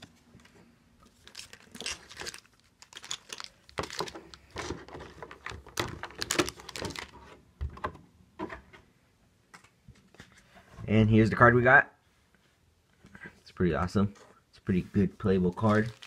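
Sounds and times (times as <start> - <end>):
plastic packaging crinkling: 1.0 - 7.3, 15.3 - 16.0.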